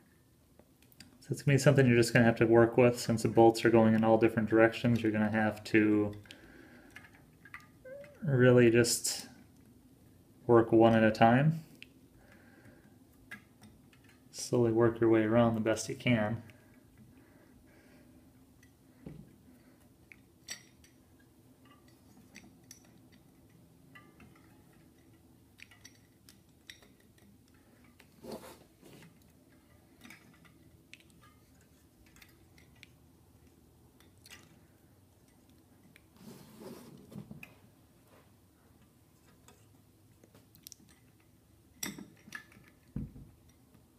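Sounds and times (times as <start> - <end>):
small metallic clicks and clinks: 20.0 - 28.1, 29.0 - 36.1, 40.5 - 43.8.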